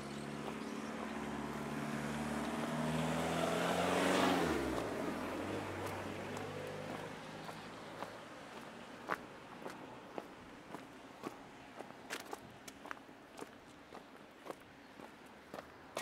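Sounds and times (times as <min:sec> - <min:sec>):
car driving past: 0:00.0 - 0:08.2.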